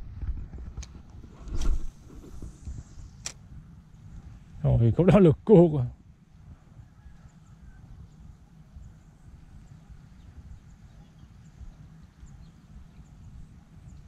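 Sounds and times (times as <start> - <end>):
wind buffeting microphone: 0.0 - 5.0.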